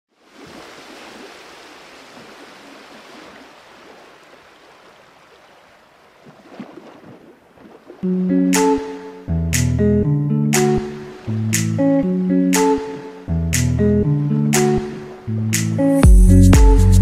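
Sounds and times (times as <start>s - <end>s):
sea water washing: 0.1s - 8.8s
guitar music: 8.0s - 17.0s.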